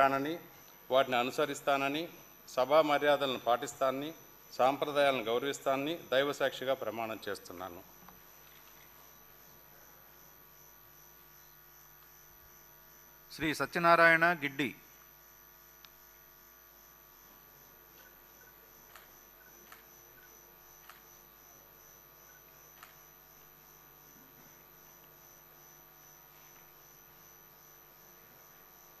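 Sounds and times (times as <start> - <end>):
electrical hum with high whine: 0.0 - 29.0.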